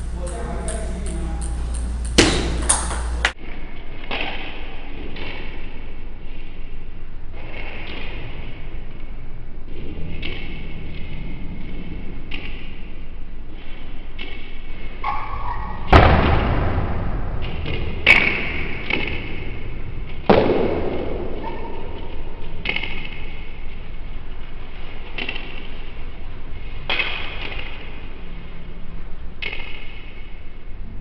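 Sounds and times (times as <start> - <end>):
table tennis ball hits: 0.0 - 3.4, 15.9 - 23.6, 26.8 - 28.0, 29.4 - 30.4
background hum: 0.0 - 31.0.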